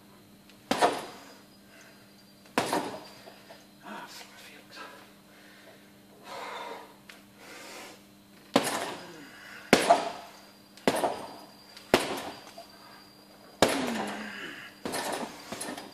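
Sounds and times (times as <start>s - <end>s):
gloves punching heavy bag: 0.7s - 1.2s, 2.6s - 3.0s, 8.5s - 9.1s, 9.7s - 12.5s, 13.6s - 15.9s.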